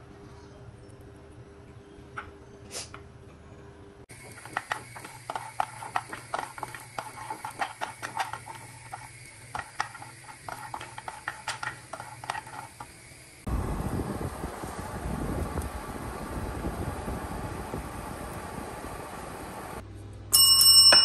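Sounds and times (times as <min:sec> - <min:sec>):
nuts clicking in frying pan: 0:04.1 - 0:13.2.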